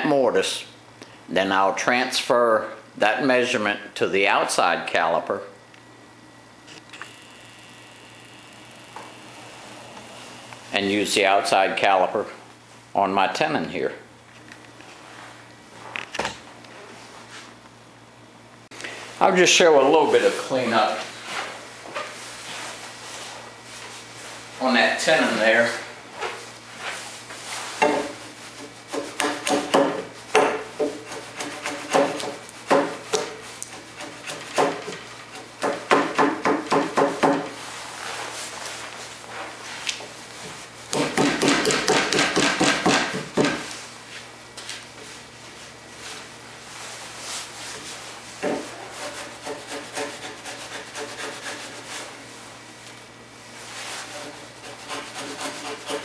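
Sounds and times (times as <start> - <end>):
wood chisel scraping wood: 30.7 - 37.6, 48.4 - 52.2, 53.8 - 56.0.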